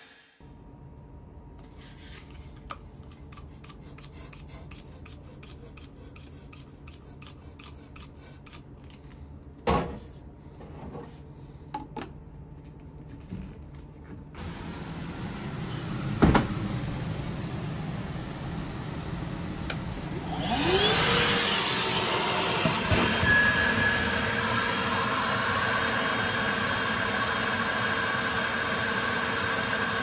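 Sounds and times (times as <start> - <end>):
low machine hum: 11.2 - 21.2.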